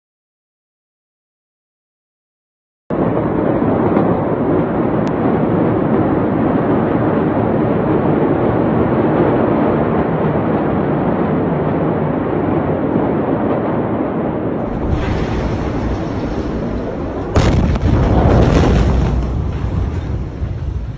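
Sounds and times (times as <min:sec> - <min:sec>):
loud rushing rumble: 0:14.6 - 0:20.9.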